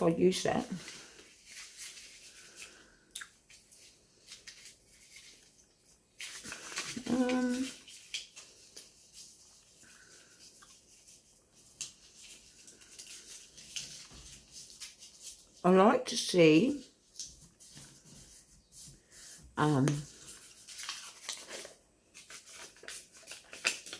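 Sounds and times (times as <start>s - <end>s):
paper rustling and tapping: 10.7s - 15.4s, 19.7s - 23.9s.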